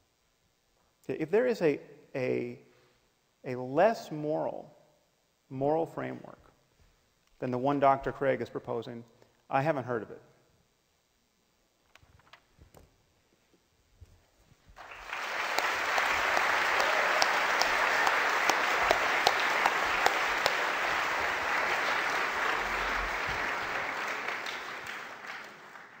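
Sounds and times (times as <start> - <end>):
crowd clapping: 14.8 - 26.0.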